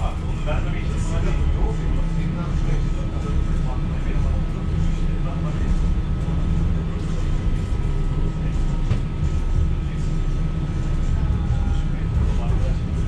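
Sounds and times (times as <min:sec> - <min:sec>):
tram wheels rumbling: 0:00.0 - 0:13.0.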